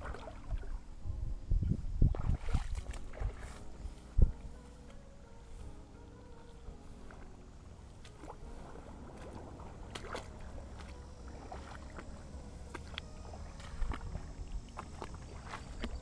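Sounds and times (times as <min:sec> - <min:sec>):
creek water splashing: 0:00.0 - 0:00.9, 0:02.0 - 0:16.0
low rumble: 0:06.0 - 0:16.0.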